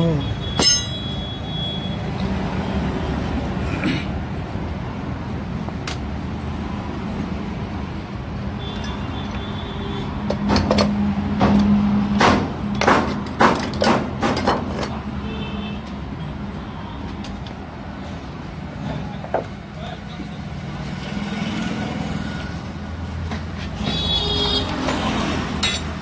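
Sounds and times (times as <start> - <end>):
sharp knocks and clatter: 10.2 - 15.0.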